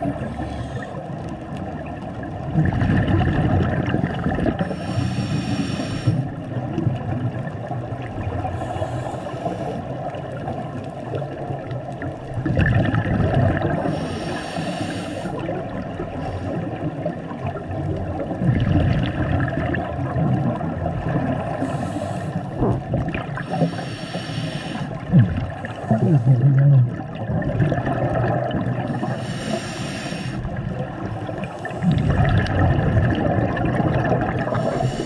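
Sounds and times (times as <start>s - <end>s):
exhaled air bubbling underwater: 0.0s - 35.0s
regulator inhale hiss: 0.1s - 1.2s, 4.6s - 6.3s, 8.5s - 9.9s, 13.8s - 15.5s, 21.6s - 22.6s, 23.4s - 25.1s, 28.9s - 30.5s, 34.6s - 35.0s.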